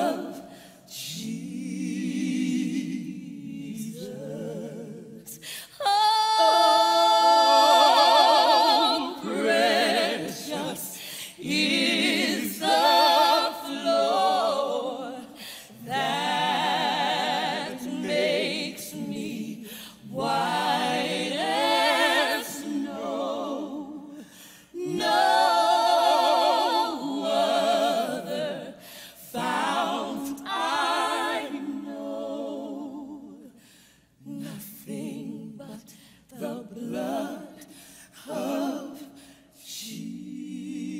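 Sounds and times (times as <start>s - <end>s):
women singing gospel unaccompanied: 0.0s - 40.9s
singers breathing: 0.4s - 0.9s, 10.9s - 11.4s, 15.3s - 15.8s, 24.2s - 24.8s, 28.8s - 29.3s, 33.5s - 34.2s, 37.6s - 38.2s.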